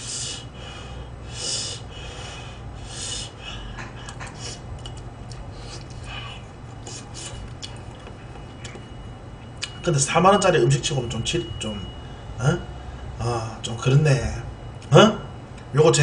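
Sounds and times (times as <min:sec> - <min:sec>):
person chewing: 0:03.7 - 0:08.9, 0:09.5 - 0:09.8.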